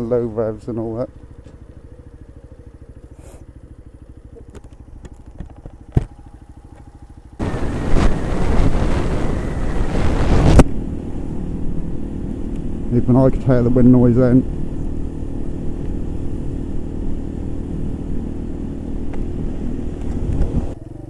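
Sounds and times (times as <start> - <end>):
motorcycle engine at low revs: 0.0 - 21.0
wind buffeting microphone: 7.4 - 12.3, 19.0 - 20.8.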